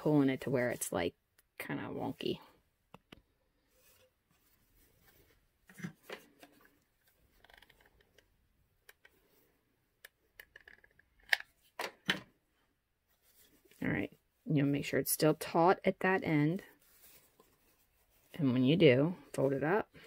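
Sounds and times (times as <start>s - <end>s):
fabric rustling: 3.6s - 7.5s, 13.0s - 20.0s.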